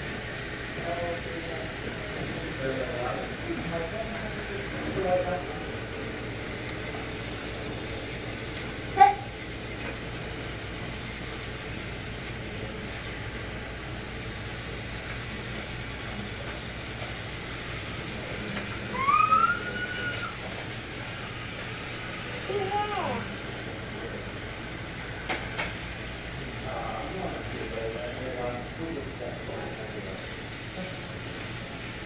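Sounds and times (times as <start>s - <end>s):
toy trains running on track: 0.0s - 32.0s
rising high call: 18.9s - 20.4s.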